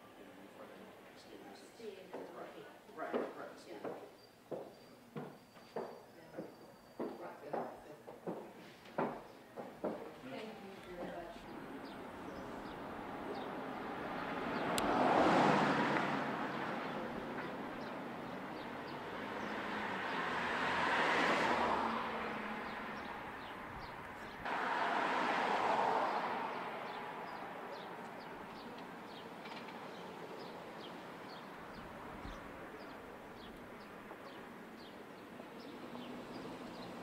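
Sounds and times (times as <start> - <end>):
vehicles passing: 0.0 - 37.0
small birds chirping: 10.5 - 15.0, 16.4 - 20.4, 22.1 - 24.5, 26.9 - 37.0.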